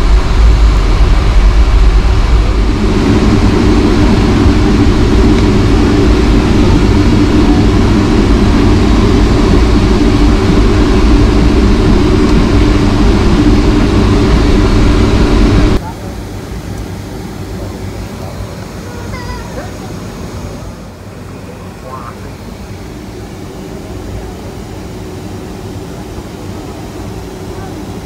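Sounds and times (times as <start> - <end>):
droning hum: 0.0 - 28.0
jet engines rumbling in cabin: 0.0 - 28.0.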